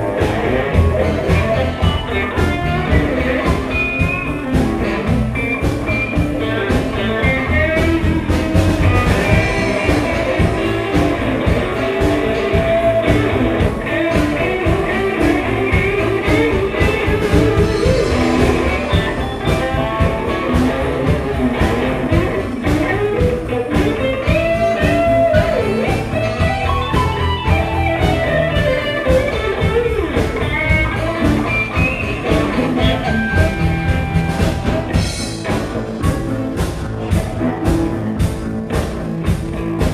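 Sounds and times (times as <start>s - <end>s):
electric guitar: 0.0s - 39.9s
live blues band: 0.0s - 39.9s.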